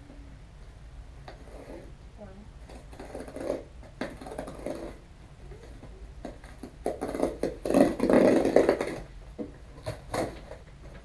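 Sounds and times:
packing tape tearing: 6.2s - 9.1s, 9.7s - 10.6s.

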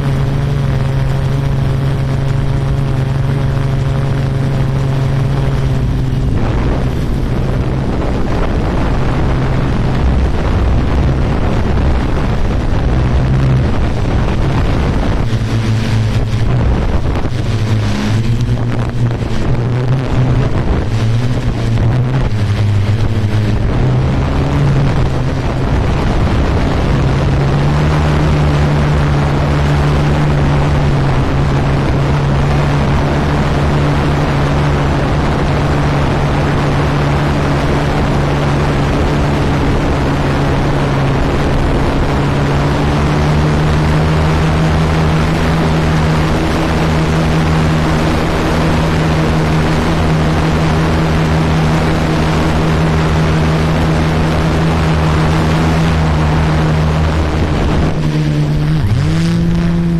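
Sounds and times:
drone propellers humming: 0.0s - 59.9s
wind buffeting microphone: 0.0s - 59.9s.

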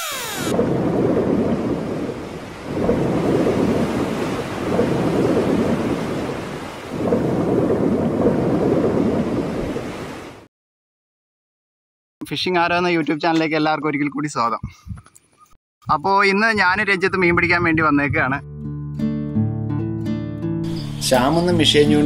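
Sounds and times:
rolling thunder: 0.5s - 10.4s.

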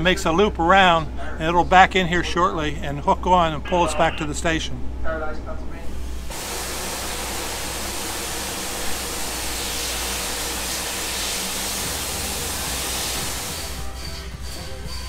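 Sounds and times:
steam locomotive hissing: 5.9s - 15.0s.

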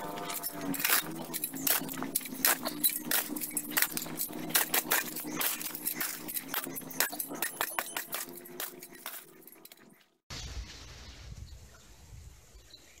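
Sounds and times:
shovel scraping gravelly soil: 0.0s - 9.9s.

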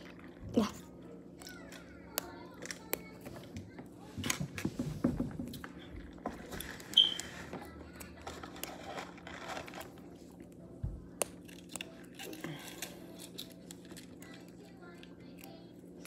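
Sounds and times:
small metal clicks and scrapes: 8.0s - 10.0s.

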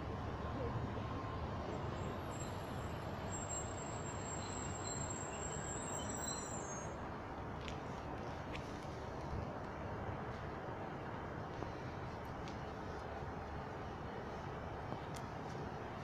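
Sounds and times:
high brake squeal: 2.0s - 7.0s.

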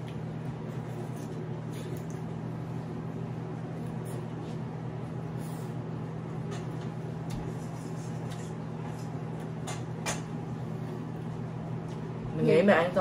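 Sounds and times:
people chewing crispy food: 0.0s - 5.2s.

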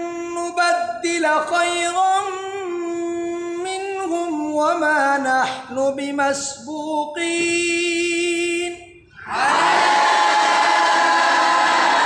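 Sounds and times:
man reciting melodically: 0.0s - 9.2s.

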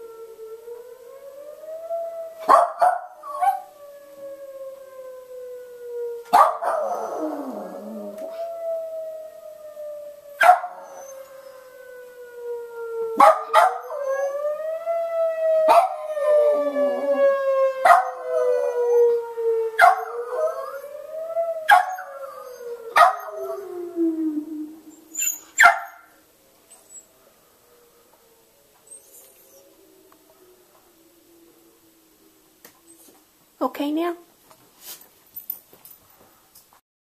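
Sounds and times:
siren wailing: 0.0s - 33.2s
dog howling and yelping: 6.4s - 8.9s, 10.4s - 11.6s, 13.2s - 15.0s, 15.6s - 27.2s, 28.7s - 30.7s.

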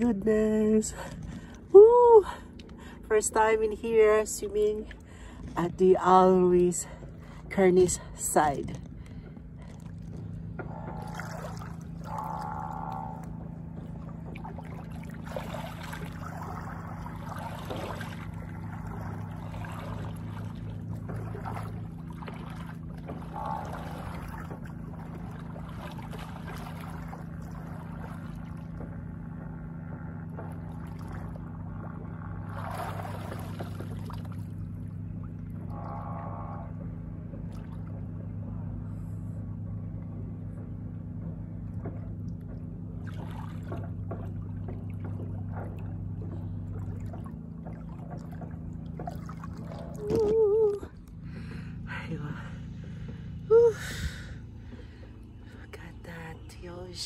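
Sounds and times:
steady low hum: 0.0s - 57.0s
water splashing around swimmer: 9.6s - 29.1s, 30.4s - 38.1s, 41.9s - 51.0s.

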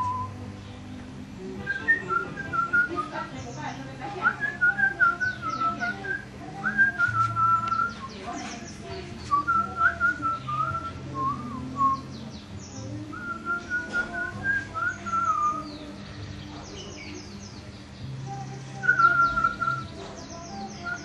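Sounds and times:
man whistling a tune: 0.0s - 0.4s, 1.7s - 3.1s, 4.4s - 8.2s, 9.4s - 12.1s
birds chirping: 0.0s - 21.0s
recorded music: 0.0s - 21.0s.

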